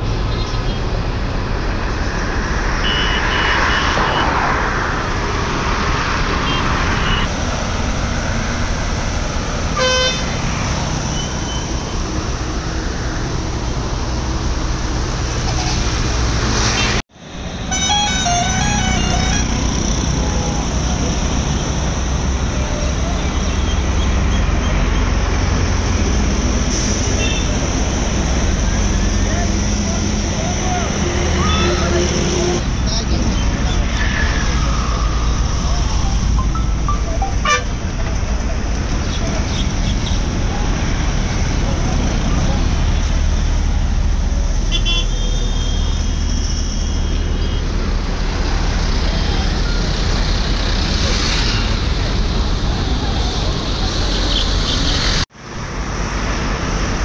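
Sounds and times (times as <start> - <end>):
truck engine rumble: 0.0 - 44.7, 45.8 - 57.0
road traffic: 0.0 - 57.0
thin high tone: 34.2 - 38.0.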